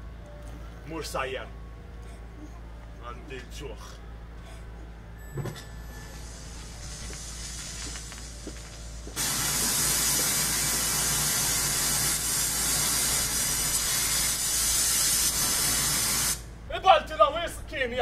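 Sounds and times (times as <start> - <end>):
steady hiss: 5.9 - 16.5.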